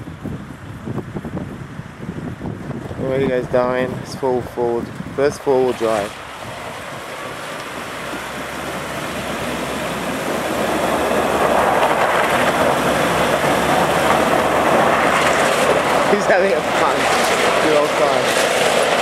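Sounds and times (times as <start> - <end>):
water splashing around tyres: 4.9 - 19.0
truck engine running: 5.6 - 19.0.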